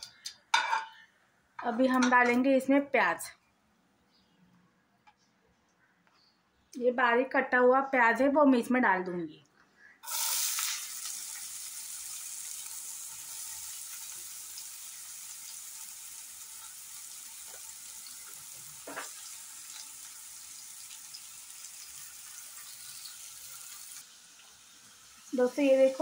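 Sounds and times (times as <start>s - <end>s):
onions sizzling in hot oil: 10.0s - 26.0s.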